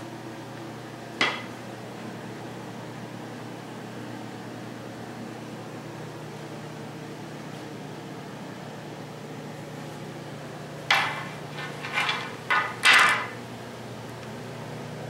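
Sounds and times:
rattling scrape: 10.9 - 13.4.

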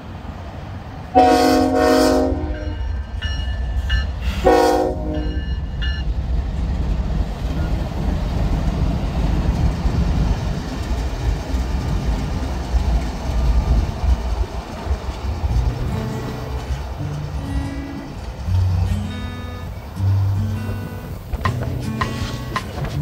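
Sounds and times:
diesel engines rumbling: 0.0 - 23.0
train wheels on rails: 0.0 - 23.0
locomotive horn blast: 1.1 - 3.0, 4.3 - 5.6.

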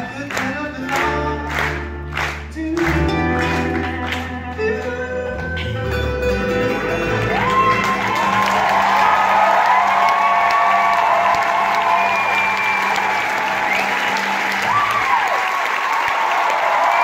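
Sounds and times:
audience applause: 0.0 - 4.4, 6.8 - 17.0
acoustic band with singing: 0.0 - 8.1
strummed acoustic guitars: 0.0 - 8.7.

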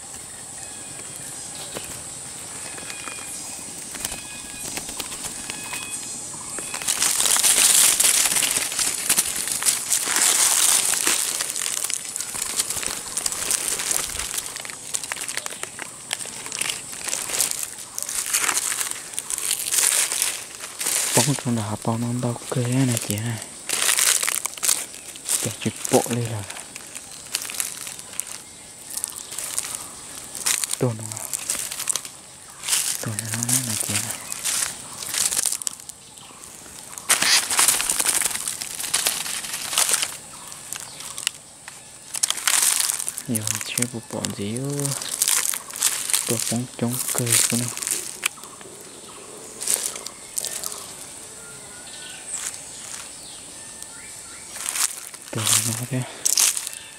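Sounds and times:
dry leaves rustling and crackling: 0.0 - 56.9.

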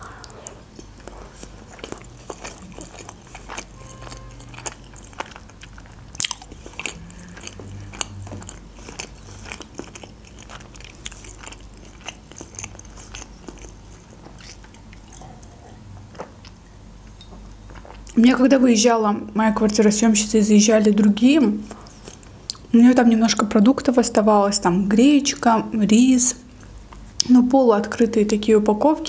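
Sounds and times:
person chewing food: 0.0 - 18.2, 21.6 - 22.7.

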